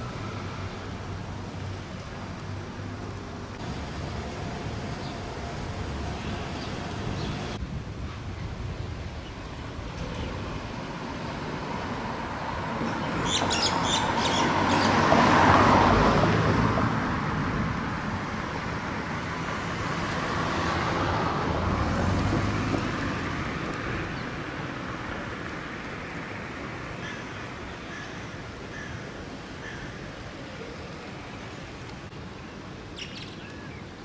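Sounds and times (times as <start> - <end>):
car passing: 9.6 - 27.4
quieter vehicle passing: 9.9 - 26.6.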